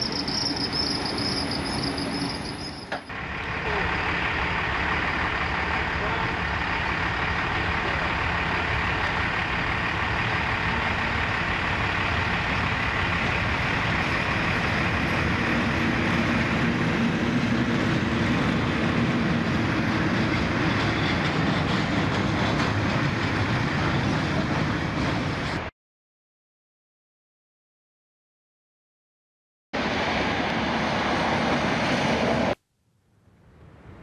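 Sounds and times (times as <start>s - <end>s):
diesel locomotive passing: 0.0s - 25.7s, 29.8s - 32.6s
rumble of wagons rolling by: 0.0s - 25.7s.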